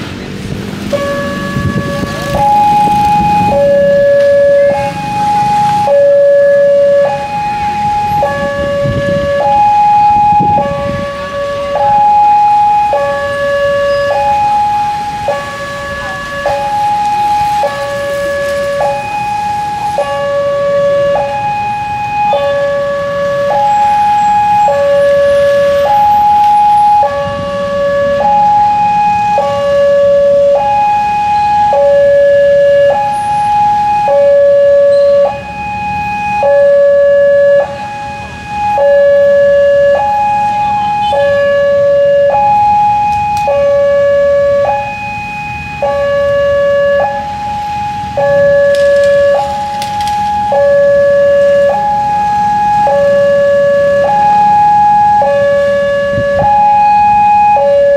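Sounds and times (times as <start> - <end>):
level crossing warning siren: 0.0 - 57.9
motorcycle traffic hum: 0.0 - 57.9.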